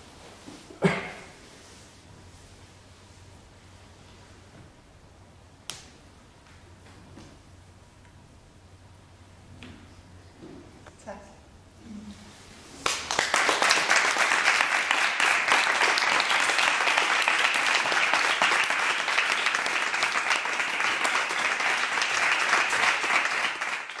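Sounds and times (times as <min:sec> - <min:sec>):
audience applauding: 0:12.8 - 0:24.0.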